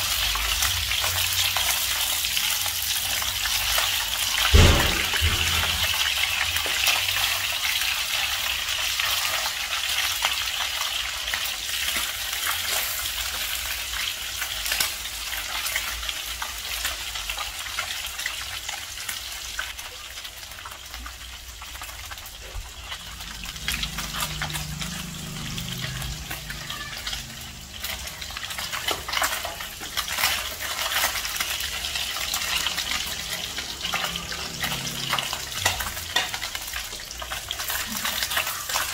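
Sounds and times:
fish sizzling in hot oil: 0.0s - 38.9s
spatula clacking and scraping: 22.8s - 38.9s.

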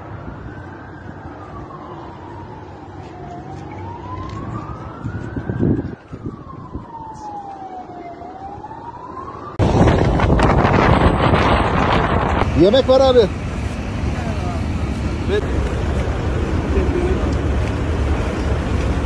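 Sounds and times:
siren wailing: 0.0s - 13.2s
wind buffeting microphone: 4.0s - 7.8s, 8.6s - 19.0s.

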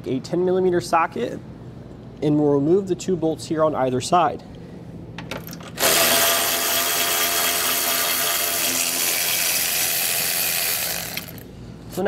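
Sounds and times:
electric ratchet motor whir: 5.8s - 11.5s.

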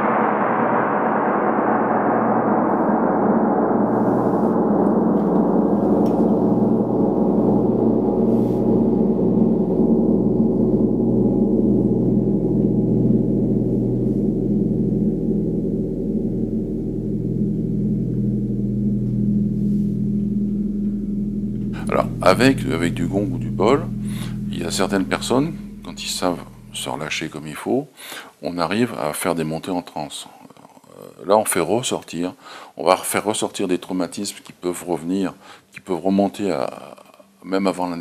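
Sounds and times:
large gong ringing: 0.0s - 27.4s.

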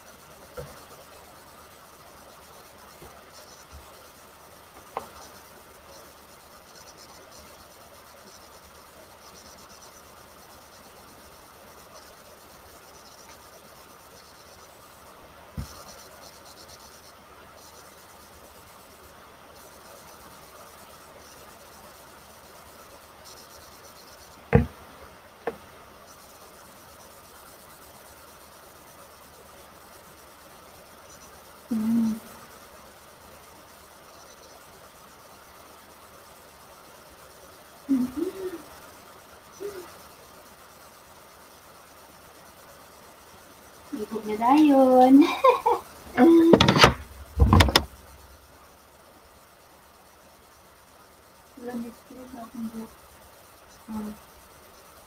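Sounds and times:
rubbing and scratching noise: 0.0s - 31.9s, 44.0s - 48.4s
sharp knocks: 24.5s - 24.8s, 46.5s - 48.0s.

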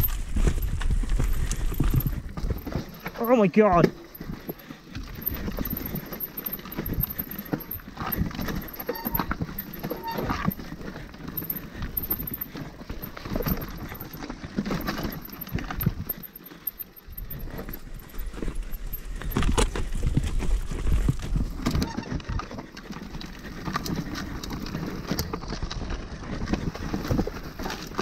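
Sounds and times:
mountain bike rattling over rocks: 0.0s - 28.0s.

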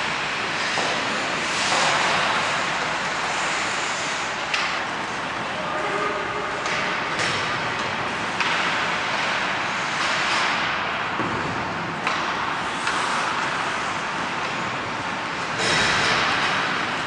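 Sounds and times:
skates scraping ice: 0.1s - 5.2s, 6.4s - 10.8s, 11.4s - 15.0s.

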